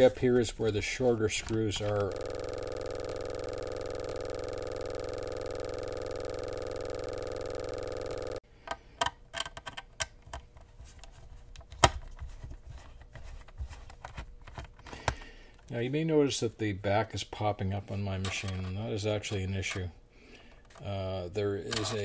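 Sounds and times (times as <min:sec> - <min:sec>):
steady buzzing drone: 0:02.0 - 0:08.4.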